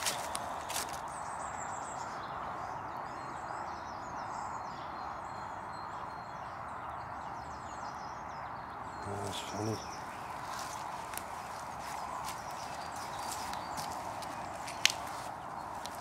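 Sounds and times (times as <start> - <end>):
small birds chirping: 0.0 - 16.0
outdoor background hiss: 8.7 - 16.0.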